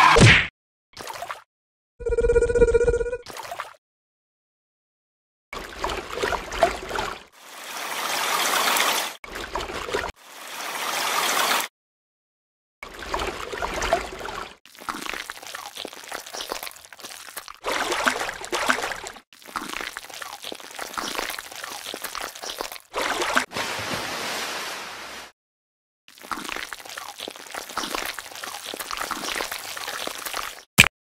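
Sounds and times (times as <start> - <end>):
liquid pouring and trickling: 12.8 - 23.5, 26.1 - 30.7.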